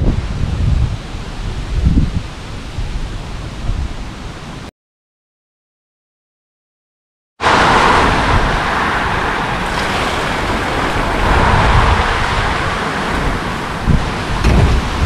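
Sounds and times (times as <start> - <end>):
wind buffeting microphone: 0.0 - 4.4, 7.4 - 15.0
storm wind rushing through trees: 0.0 - 4.7, 7.4 - 15.0.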